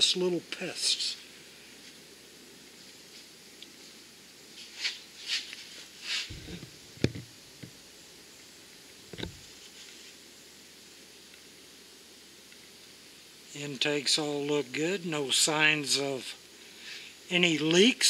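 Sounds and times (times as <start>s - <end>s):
faint hiss: 0.0s - 18.0s
scraping rustles: 2.8s - 7.8s
low thump: 6.3s - 7.7s.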